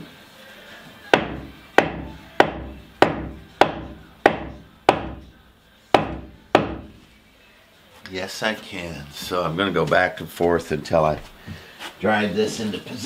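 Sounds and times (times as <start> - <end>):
sledgehammer pounding wooden block: 1.2 - 5.4, 6.0 - 7.0.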